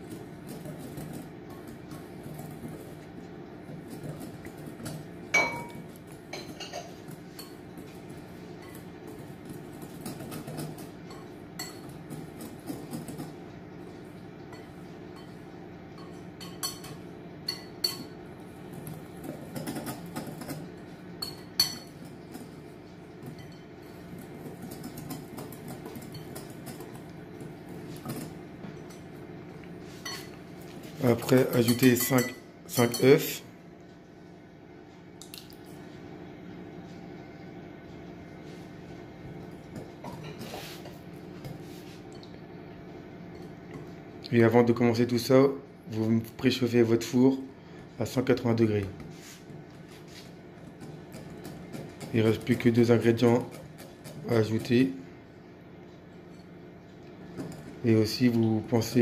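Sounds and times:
mixing flour by hand in bowl: 0.0 - 29.0, 29.6 - 33.4, 39.6 - 42.2, 44.3 - 55.2.

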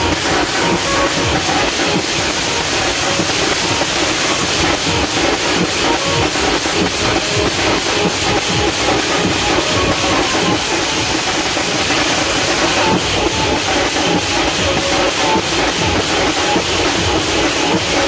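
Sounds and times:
band drumming fast beat: 0.0 - 18.0.

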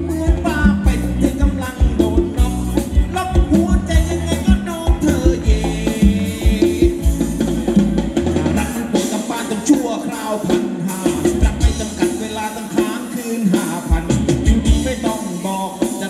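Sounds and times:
live band dance music: 0.0 - 16.0.

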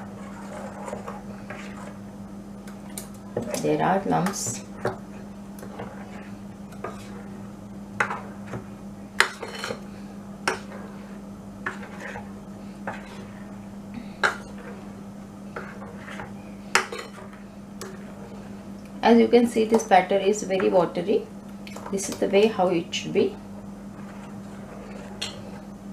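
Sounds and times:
utensil scraping mixing bowl: 0.0 - 2.0, 5.6 - 7.4, 11.6 - 13.5, 14.4 - 18.5, 23.9 - 25.7
steady low hum: 0.0 - 25.9.

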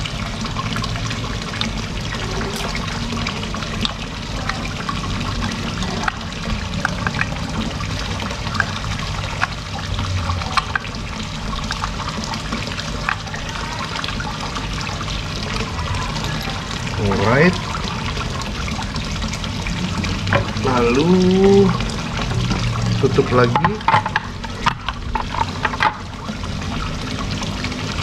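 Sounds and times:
running water: 0.0 - 28.0.

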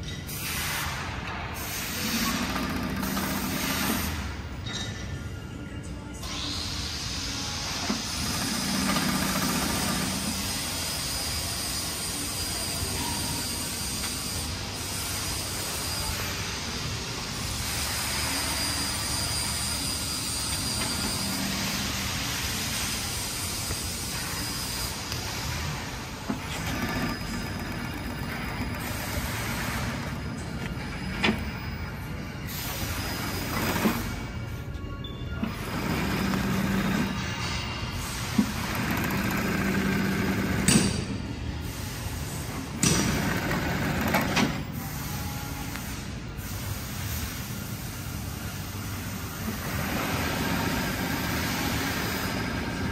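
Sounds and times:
sewing machine whirring: 26.2 - 31.5, 35.4 - 37.2, 38.4 - 40.7
sewing machine running: 26.5 - 28.9.

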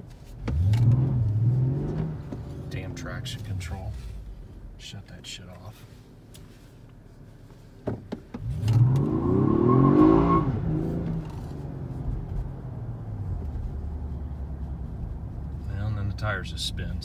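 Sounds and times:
car engine accelerating: 0.4 - 4.9, 8.3 - 17.0.

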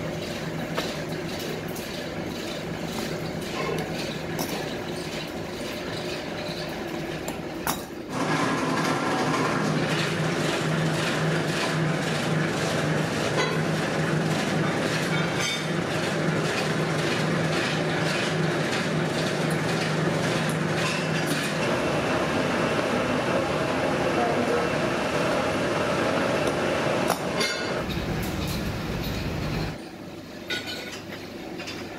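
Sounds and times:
machine clatter: 0.0 - 21.7, 27.1 - 29.8
extruder machine hum: 21.4 - 29.8.

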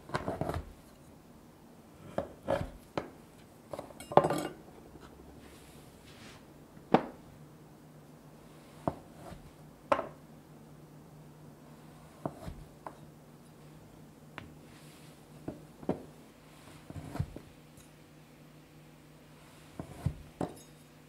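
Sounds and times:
kitchen items knocking and clinking: 3.8 - 4.6.

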